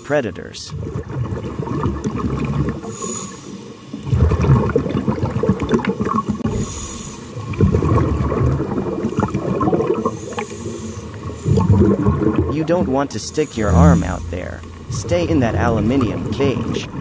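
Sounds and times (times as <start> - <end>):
regulator inhalation hiss: 2.8 - 3.7, 6.5 - 7.4, 10.0 - 11.5, 13.3 - 14.8
bubbling exhalation: 4.0 - 6.6, 7.4 - 10.5, 11.4 - 17.0.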